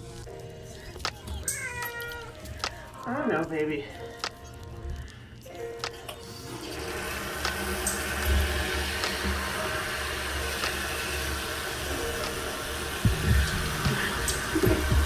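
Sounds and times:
water running into tub: 0:06.5 - 0:15.0.

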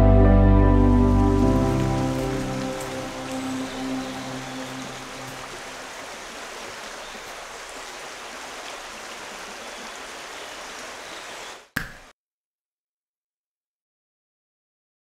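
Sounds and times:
stream running water: 0:00.8 - 0:12.1.

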